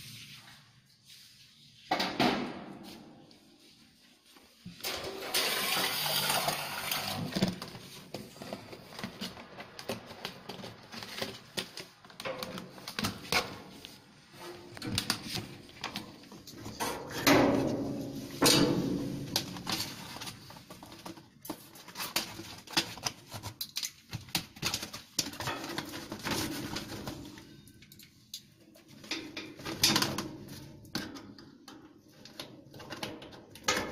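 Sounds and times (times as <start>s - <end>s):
aluminium foil duct crinkling: 18.1s - 30.9s.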